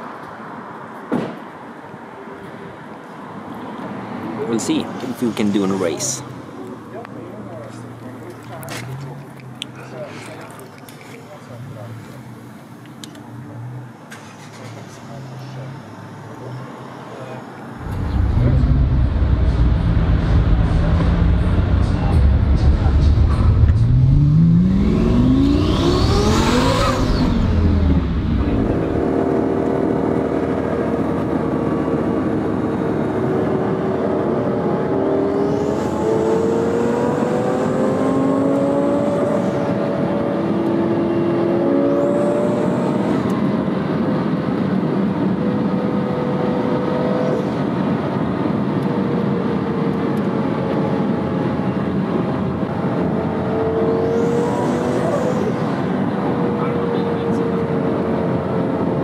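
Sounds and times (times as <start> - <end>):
car engine revving: 17.8 - 43.7, 52.5 - 59.0.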